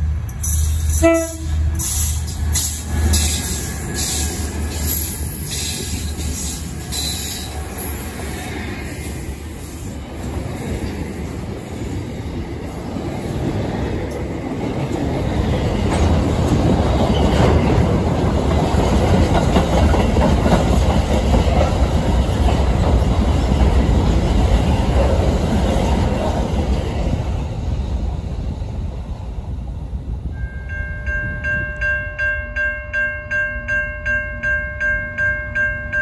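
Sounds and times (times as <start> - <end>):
freight train wheels clacking: 0.0 - 27.4.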